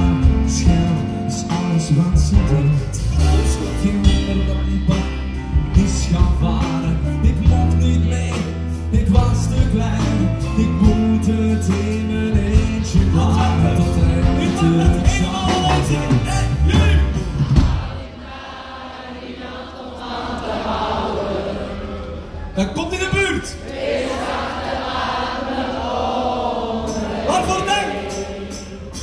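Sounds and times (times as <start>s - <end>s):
men singing: 0.0s - 18.0s
live band playing: 0.0s - 18.2s, 26.8s - 29.0s.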